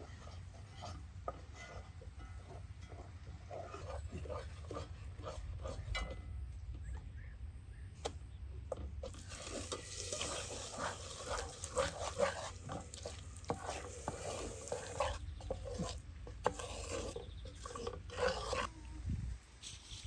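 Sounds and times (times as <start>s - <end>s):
spoon scraping a pan: 0.0s - 6.3s, 9.0s - 18.7s
caramel bubbling and sizzling: 9.0s - 18.7s.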